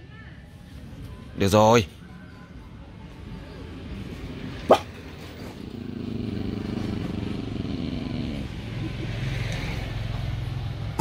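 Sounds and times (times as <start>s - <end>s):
motorcycle engine running: 4.3s - 9.0s.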